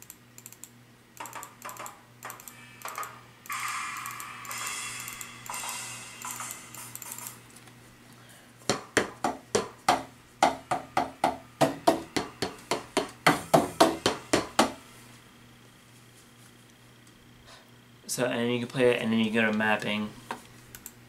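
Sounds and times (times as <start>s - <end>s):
electric drum strikes: 1.8s - 7.5s, 8.8s - 14.9s.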